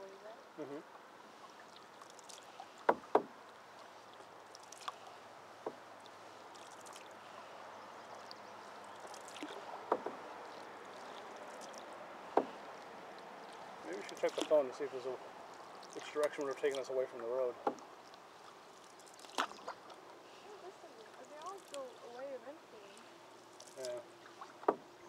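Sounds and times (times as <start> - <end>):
paddle strokes in calm water: 0.0 - 25.0
steady water wash: 0.0 - 25.0
paddle knocking against canoe: 2.7 - 3.4, 5.5 - 5.9, 9.4 - 10.5, 12.2 - 12.9, 17.5 - 18.6, 24.3 - 25.0.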